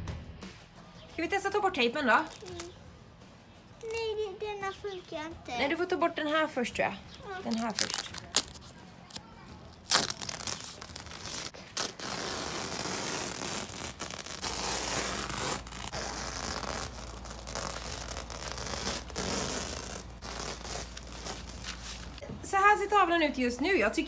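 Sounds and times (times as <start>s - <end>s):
masking tape ripping: 2.2s - 2.8s, 7.3s - 22.2s.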